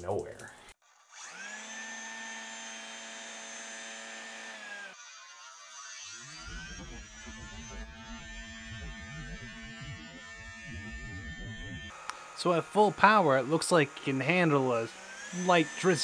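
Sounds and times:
fan motor hum with whine: 6.2 - 16.0.

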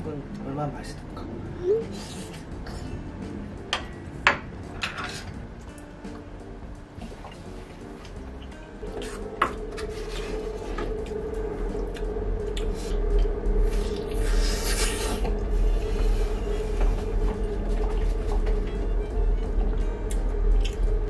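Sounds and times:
soft background music: 0.0 - 21.0
noisy slurp: 12.6 - 16.8.

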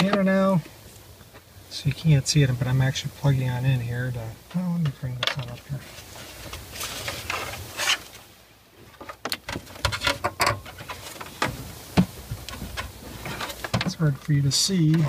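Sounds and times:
rustling of plastic parts: 5.3 - 8.2, 8.8 - 14.0.

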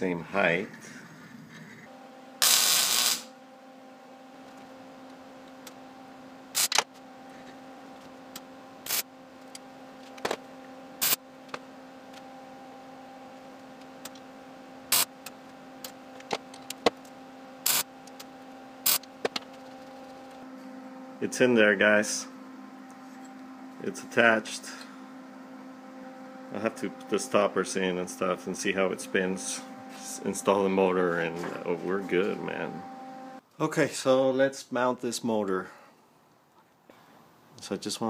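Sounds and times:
steady electrical hum: 0.0 - 38.0
arc welder crackling bursts: 2.4 - 3.4, 6.5 - 6.9, 8.8 - 9.2, 11.0 - 11.3, 14.8 - 15.3, 17.6 - 18.2, 18.8 - 19.2.

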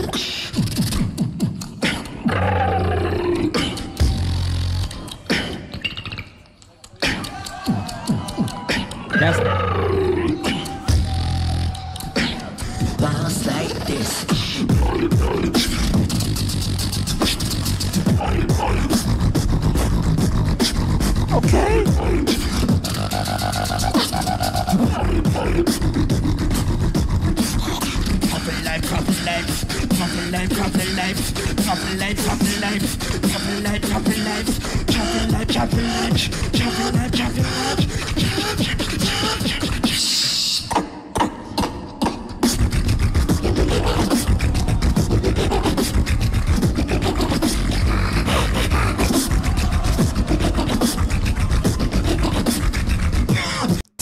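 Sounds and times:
beatboxing clicks and snares: 0.0 - 54.0
deep beatbox bass: 0.0 - 54.0
held vocal tone: 27.6 - 53.8.

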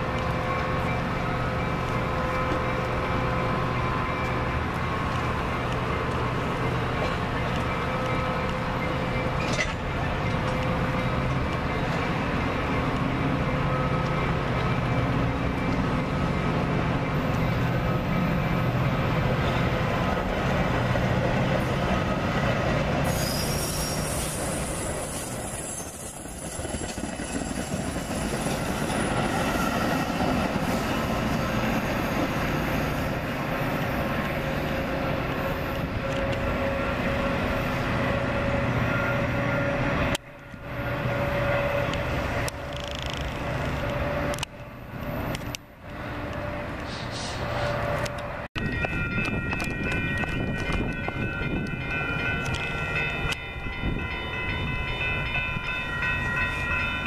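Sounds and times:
train wheels rumbling on rails: 0.0 - 57.0
high wheel squeal: 23.0 - 39.8.

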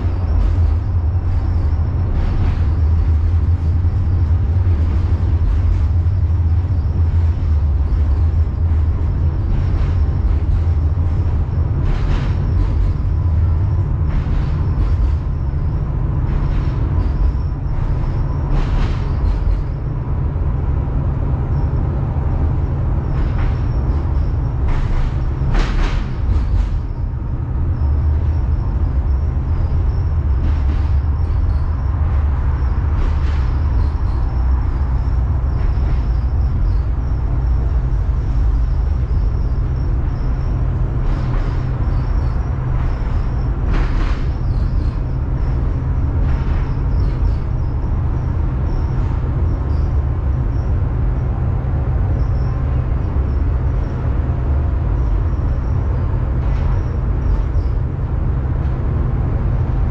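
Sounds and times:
sharp track clacks: 0.0 - 20.0, 23.0 - 49.6
tram rumbling on track: 0.0 - 59.9.

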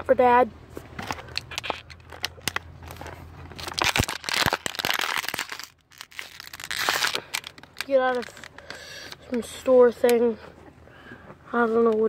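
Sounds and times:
plastic bottle crinkling: 1.0 - 9.4.

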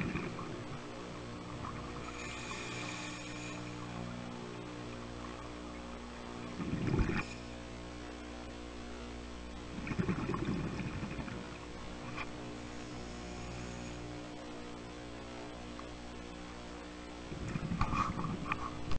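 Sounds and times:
diver regulator bubbles: 0.0 - 3.9, 6.4 - 7.4, 9.7 - 12.4, 17.3 - 18.6
low underwater hum: 0.0 - 18.9.

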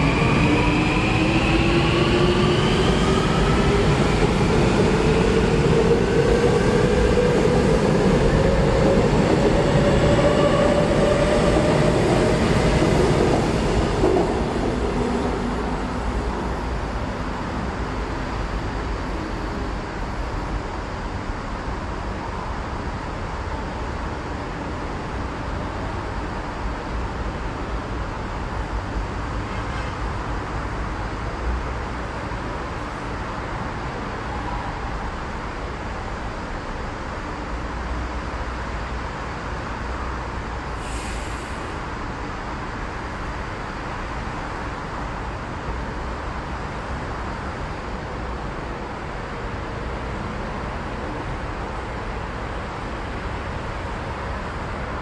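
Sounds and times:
short high hiss: 40.8 - 41.8.

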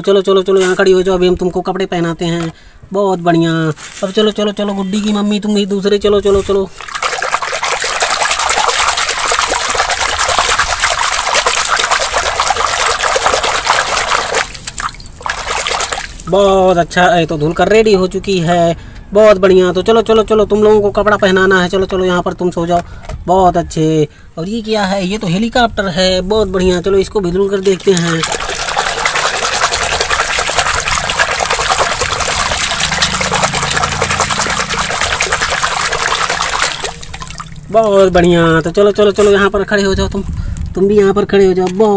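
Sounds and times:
water splashing and sloshing in basin: 6.5 - 16.5, 27.6 - 38.0.

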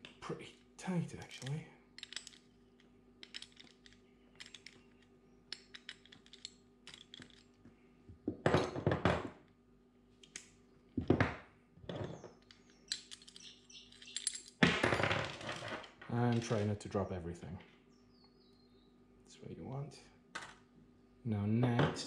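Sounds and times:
tools clattering on wooden table: 1.4 - 7.6, 8.3 - 9.4, 11.0 - 16.7.

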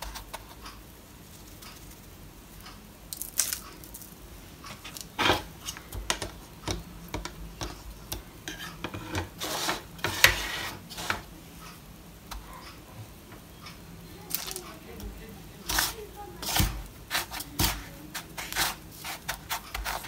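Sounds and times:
fork scraping a plastic bowl: 8.5 - 11.3, 15.7 - 20.0.

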